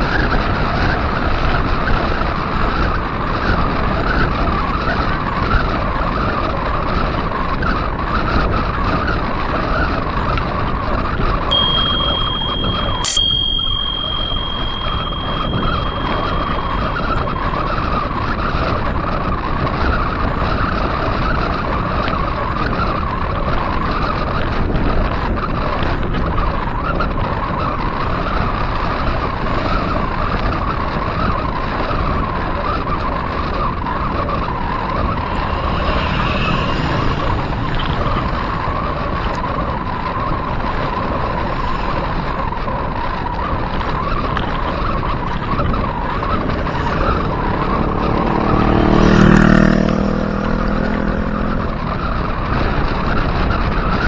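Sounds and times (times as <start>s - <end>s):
wind noise: 0.0s - 54.0s
bicycle bell ringing: 11.5s - 18.7s, 45.0s - 51.6s.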